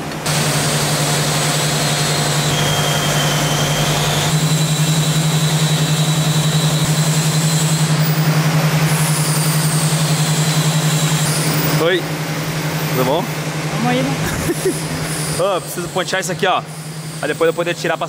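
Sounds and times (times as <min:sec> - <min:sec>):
workshop machinery hum: 0:00.0 - 0:18.0
faint high whine: 0:00.4 - 0:08.3.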